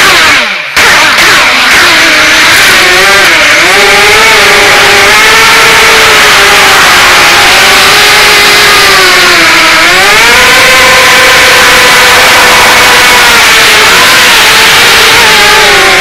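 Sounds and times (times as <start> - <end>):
quadcopter motors whining: 0.0 - 16.0.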